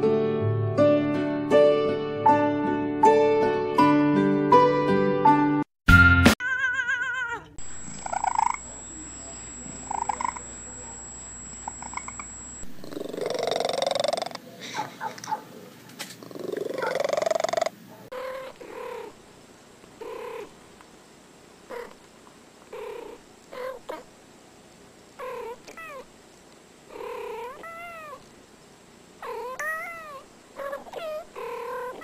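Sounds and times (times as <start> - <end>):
cat drawn-out yowling: 6.4 - 8.6, 27.3 - 28.2, 29.2 - 32.0
cats meowing and chirping: 6.4 - 8.6, 18.1 - 19.1, 23.0 - 24.0, 25.2 - 26.1, 27.0 - 28.2, 29.2 - 32.0.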